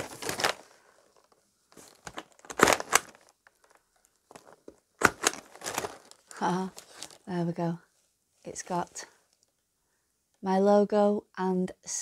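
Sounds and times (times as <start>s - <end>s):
paper crinkling: 0.0s - 7.3s
rubber stamp clacks: 2.1s - 3.2s, 4.3s - 6.0s.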